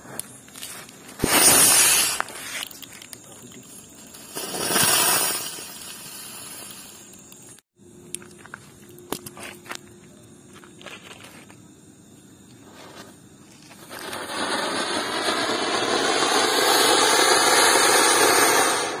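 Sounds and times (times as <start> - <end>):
firework sparks hissing: 0.0 - 7.6, 12.4 - 19.0.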